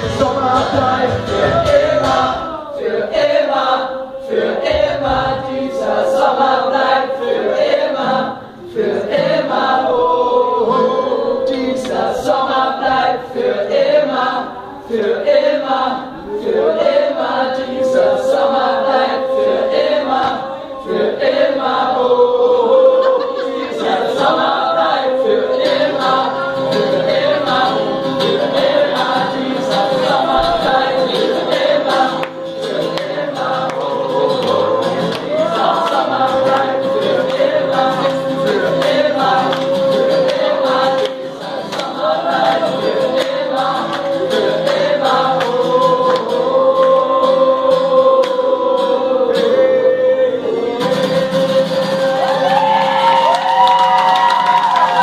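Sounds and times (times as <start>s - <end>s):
strummed acoustic guitar: 0.0s - 6.2s, 17.5s - 52.5s
crowd singing along: 0.0s - 55.0s.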